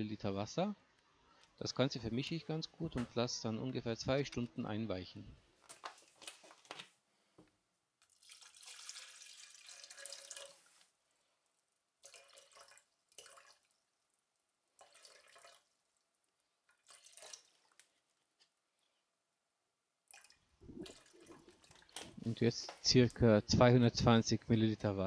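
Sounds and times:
water pouring into plastic jug: 0:08.0 - 0:10.9, 0:12.0 - 0:18.0, 0:20.1 - 0:23.2.

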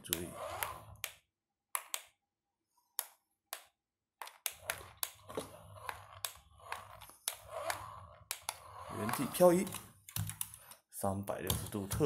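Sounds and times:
small electric motor humming: 0:05.2 - 0:09.5.

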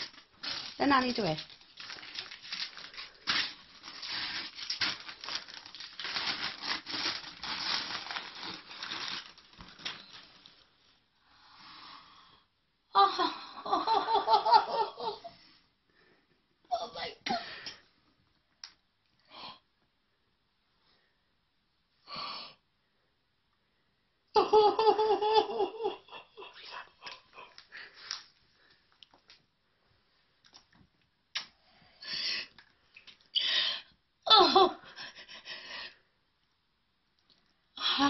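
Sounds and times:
wrapping paper rustling and tearing: 0:00.0 - 0:10.7.

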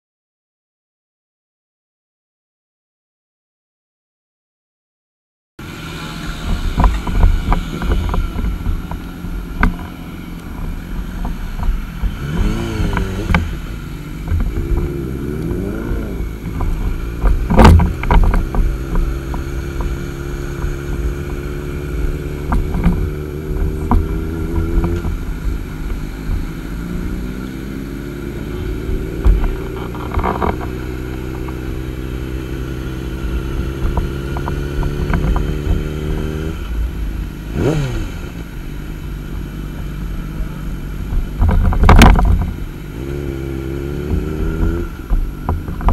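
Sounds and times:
motorcycle engine idling: 0:38.4 - 0:43.0.

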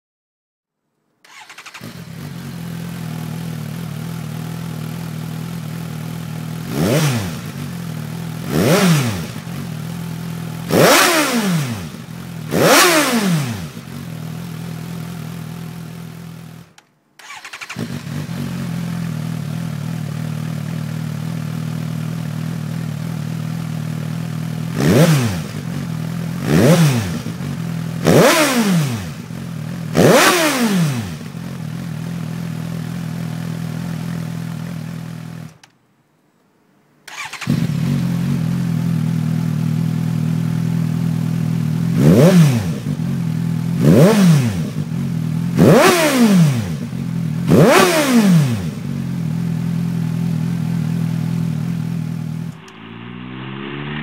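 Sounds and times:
engine revving: 0:01.3 - 0:04.8, 0:06.5 - 0:15.5, 0:17.2 - 0:20.2, 0:24.6 - 0:31.8, 0:37.1 - 0:39.6, 0:40.9 - 0:54.0
motorcycle engine idling: 0:01.3 - 0:11.0, 0:11.8 - 0:12.6, 0:13.6 - 0:16.8, 0:17.6 - 0:28.1, 0:29.1 - 0:30.0, 0:31.1 - 0:35.5, 0:37.6 - 0:45.9, 0:46.7 - 0:47.8, 0:48.6 - 0:52.8.

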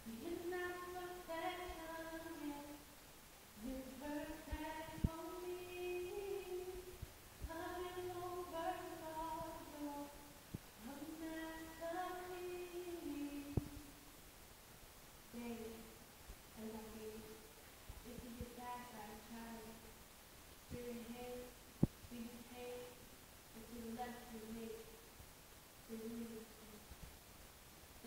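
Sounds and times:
woman singing unaccompanied: 0:00.0 - 0:02.9, 0:03.6 - 0:14.0, 0:15.3 - 0:16.0, 0:16.6 - 0:17.4, 0:18.0 - 0:19.9, 0:20.7 - 0:24.9, 0:25.9 - 0:26.8.

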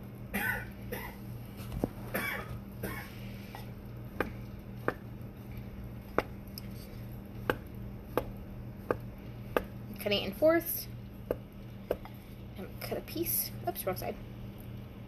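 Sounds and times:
spoon tapping pot bottom: 0:07.5 - 0:09.8.

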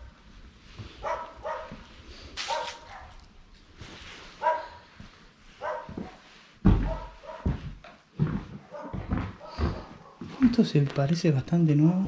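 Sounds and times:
dog barking: 0:01.0 - 0:03.2, 0:04.4 - 0:04.9, 0:05.6 - 0:06.2, 0:06.8 - 0:07.6, 0:08.6 - 0:10.4.

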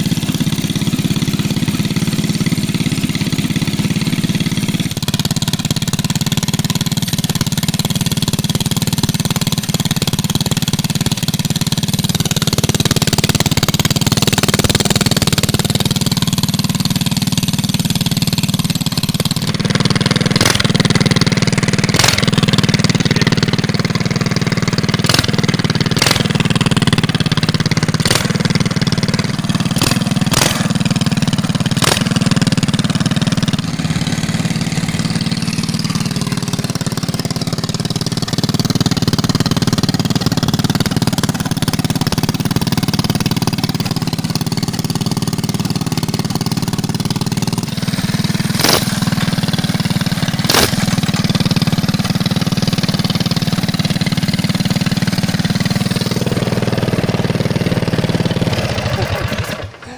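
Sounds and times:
small engine idling: 0:00.0 - 0:59.9
sharp clicks: 0:22.0 - 0:22.4, 0:26.0 - 0:26.4, 0:29.8 - 0:30.7.

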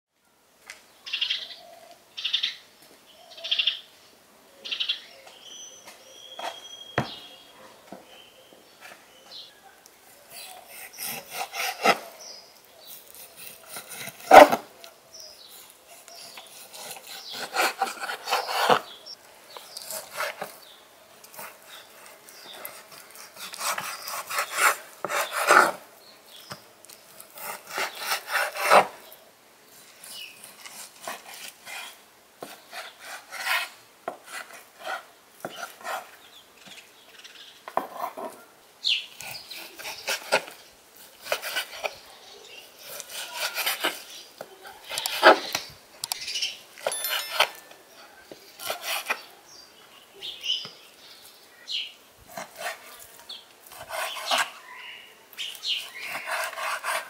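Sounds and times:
bird calling: 0:04.6 - 0:13.6, 0:53.3 - 0:56.6.

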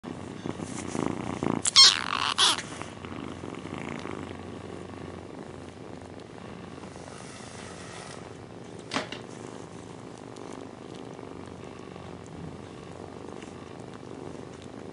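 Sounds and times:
cat purring: 0:00.0 - 0:14.9
cat high-pitched cries: 0:01.6 - 0:02.6.

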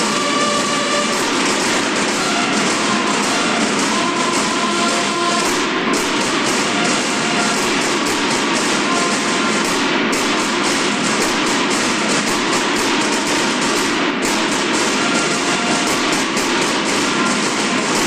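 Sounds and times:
marching snare drums: 0:00.0 - 0:18.0.

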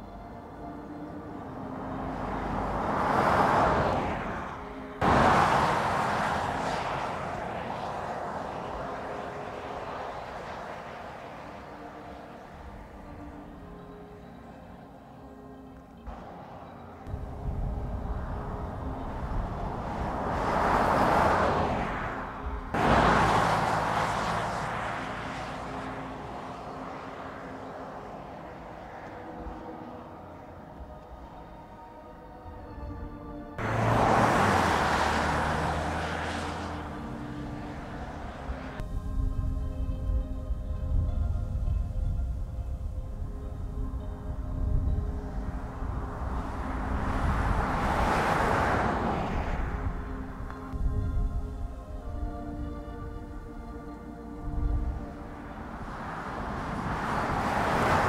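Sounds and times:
car driving past: 0:01.4 - 0:13.3, 0:16.1 - 0:30.4, 0:33.6 - 0:38.8, 0:45.0 - 0:50.8, 0:54.8 - 0:58.0.

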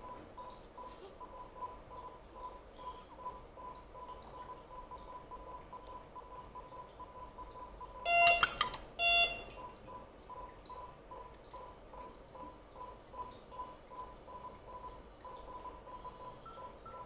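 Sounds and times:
faint electronic beeping: 0:00.0 - 0:17.0
loud short electronic beeps: 0:08.0 - 0:09.5.

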